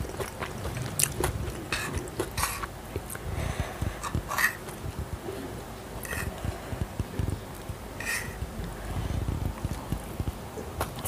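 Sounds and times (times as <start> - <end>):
chewing with wet mouth clicks: 0.0 - 3.2
fork scraping through noodles: 4.0 - 4.6, 6.0 - 6.3, 8.0 - 8.4.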